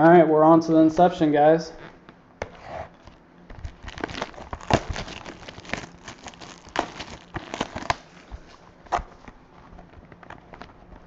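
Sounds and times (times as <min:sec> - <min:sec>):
plastic shrink wrap crinkling: 0:03.0 - 0:10.8.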